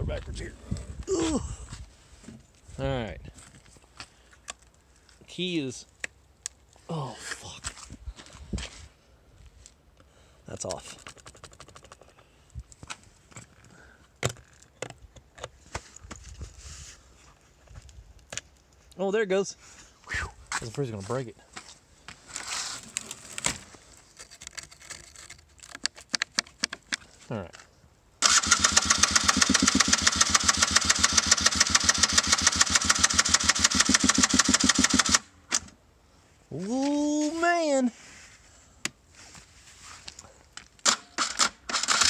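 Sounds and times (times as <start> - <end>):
engine cranking without starting: 28.2 - 35.6, 40.9 - 42.0
electric starter whine: 28.2 - 35.7.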